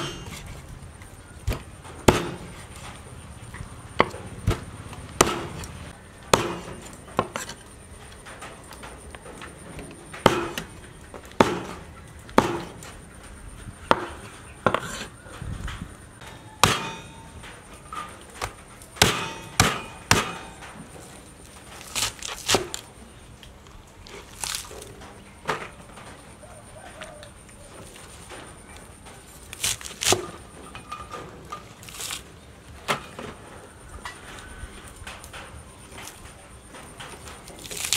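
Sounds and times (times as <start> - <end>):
cleaver chopping on wooden board: 4.0 - 5.7, 6.3 - 7.4.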